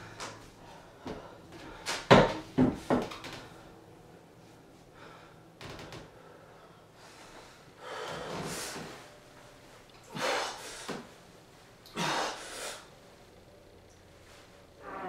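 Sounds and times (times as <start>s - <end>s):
man exhaling forcefully: 12.0s - 12.9s.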